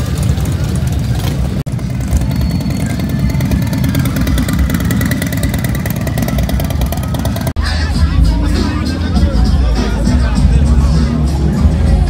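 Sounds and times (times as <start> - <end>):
motorcycles riding past: 0.0 - 7.6.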